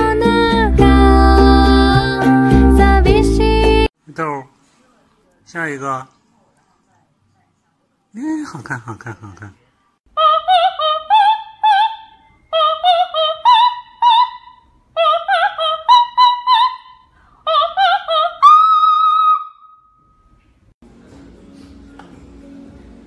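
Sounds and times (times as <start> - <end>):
high operatic singing: 0.0 - 3.9, 10.1 - 19.8.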